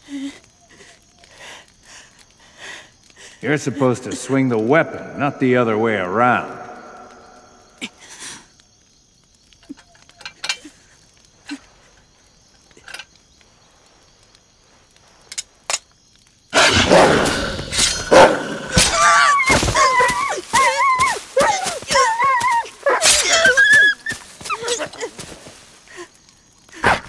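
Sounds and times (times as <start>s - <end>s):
campfire crackling: 0.0s - 27.0s
wolf snarling: 16.6s - 20.1s.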